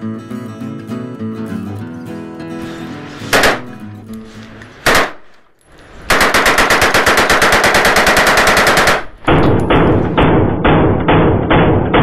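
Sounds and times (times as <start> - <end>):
rapid rifle fire: 3.3 - 3.7, 4.8 - 5.3, 6.1 - 12.0
rifle single shots: 3.3 - 3.7, 4.8 - 5.3.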